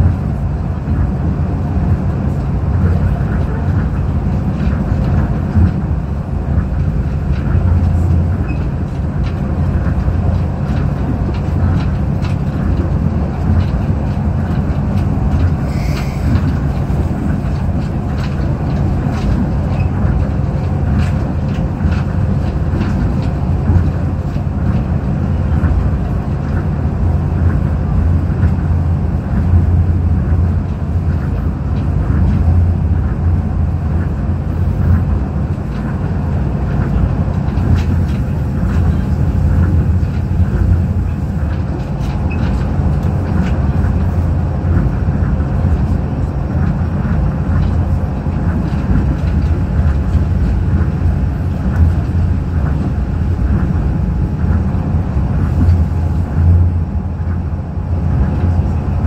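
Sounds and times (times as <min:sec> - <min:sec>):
monorail low rumble: 0:00.0 - 0:59.0
faint clicks and rattles: 0:06.5 - 0:26.7.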